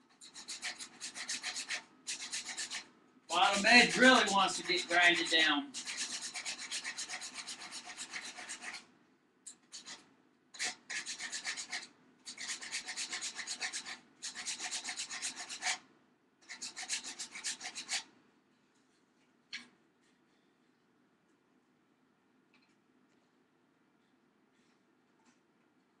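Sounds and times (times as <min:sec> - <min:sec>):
hand file on wood: 0:00.0 - 0:08.8, 0:09.7 - 0:10.0, 0:10.6 - 0:15.8, 0:16.4 - 0:18.1.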